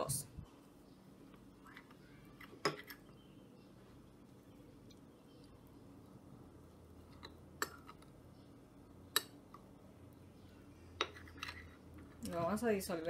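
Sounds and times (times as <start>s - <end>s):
spoon stirring in bowl: 7.0s - 8.2s, 11.0s - 12.3s.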